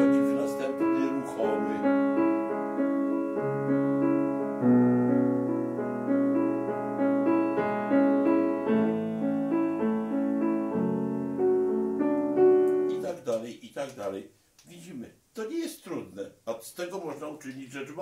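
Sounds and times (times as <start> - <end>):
slow legato piano melody: 0.0 - 13.4.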